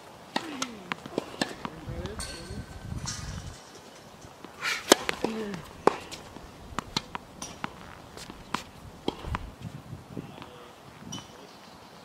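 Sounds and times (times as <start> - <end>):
tennis ball hit and bouncing: 0.3 - 3.4, 4.4 - 9.5
footsteps on court: 4.4 - 9.7.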